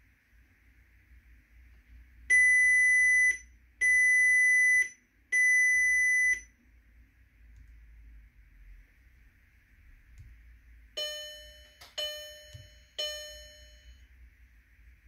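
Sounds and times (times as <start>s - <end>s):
high warning buzzer beeps: 2.3s - 6.5s, 11.0s - 14.0s.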